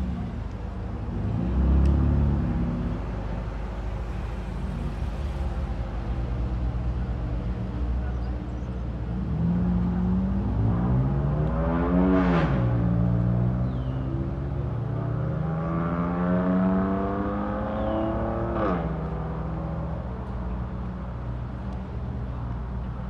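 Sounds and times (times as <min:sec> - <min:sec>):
car engine accelerating: 0:00.0 - 0:03.4.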